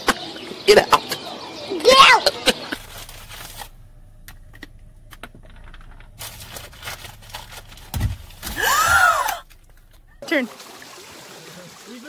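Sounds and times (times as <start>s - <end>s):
heavy thump: 7.7s - 10.2s
ostrich cry: 8.5s - 9.5s.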